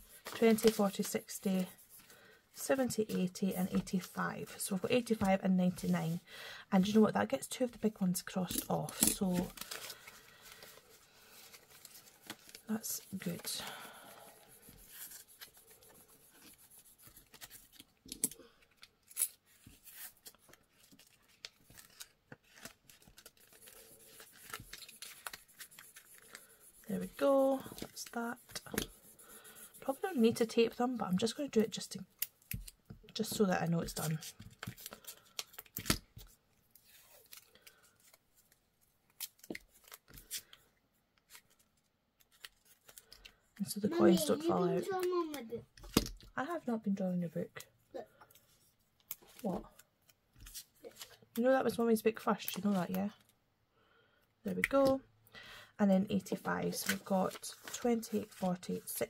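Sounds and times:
banknotes and envelopes rustling: 0.0s - 6.2s, 6.8s - 45.2s, 56.2s - 59.0s
paper tape peeling: 18.7s - 27.2s
light paper crackles and taps: 19.6s - 26.5s, 27.1s - 29.0s, 31.5s - 40.6s.

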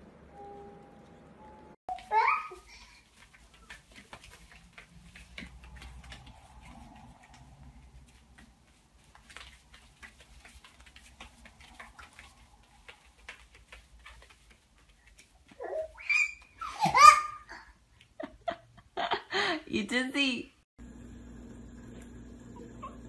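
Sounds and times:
bare feet on floor mats: 1.9s - 18.2s
dog paws clicking and tapping: 1.9s - 18.6s.

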